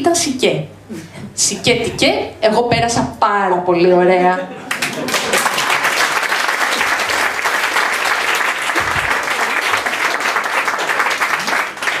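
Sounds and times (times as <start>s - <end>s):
audience clapping: 4.7s - 12.0s.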